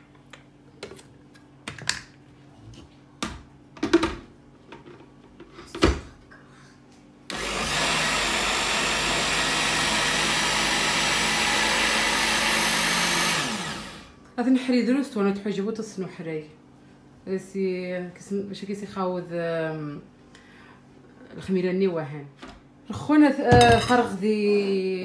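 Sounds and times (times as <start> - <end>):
blender running: 7.3 - 14.2.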